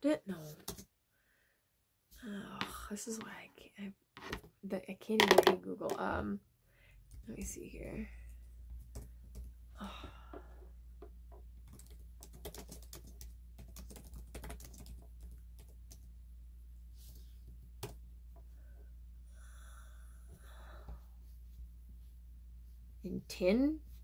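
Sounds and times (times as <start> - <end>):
steady low hum: 15.1 - 24.0.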